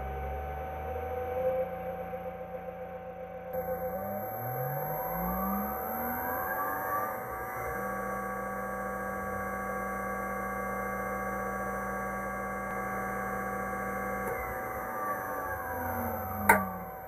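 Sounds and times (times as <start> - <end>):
electric motor humming and whining: 3.6 - 17.0.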